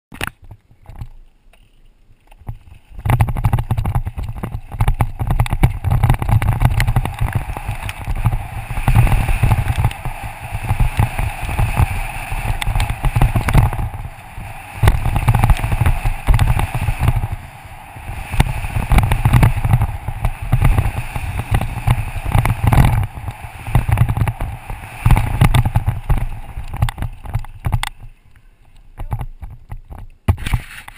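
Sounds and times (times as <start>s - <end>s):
bike rattling and knocking: 0.1s - 30.9s
tyres rolling over gravel: 1.8s - 29.9s
wind buffeting camera: 2.2s - 30.9s.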